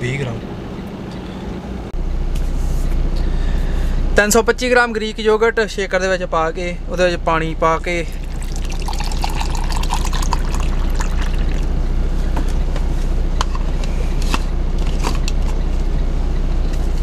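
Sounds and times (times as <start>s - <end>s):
steady low hum: 0.0s - 17.0s
water pouring into plastic cup: 8.1s - 11.7s.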